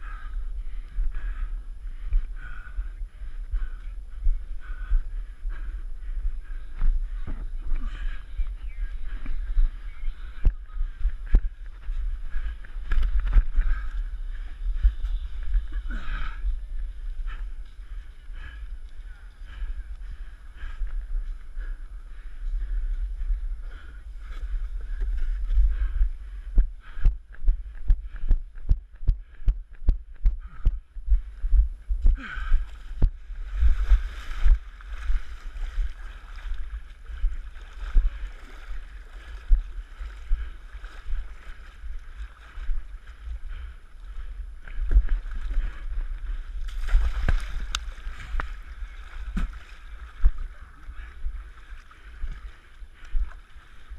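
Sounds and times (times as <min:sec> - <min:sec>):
wind rumble on microphone: 0:00.0 - 0:53.9
splashing in muddy water: 0:32.7 - 0:43.4, 0:44.8 - 0:52.7.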